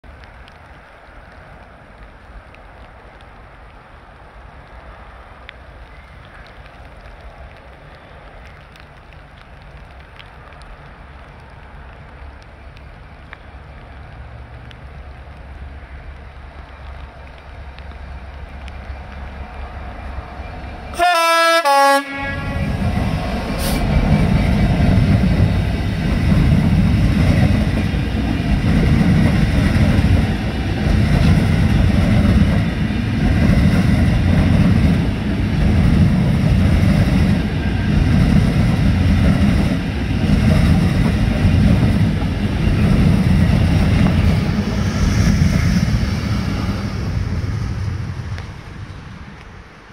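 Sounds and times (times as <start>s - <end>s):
diesel locomotives rumbling: 5.6s - 49.9s
locomotive horn blast: 20.9s - 23.0s
wheels on rails: 22.6s - 49.9s.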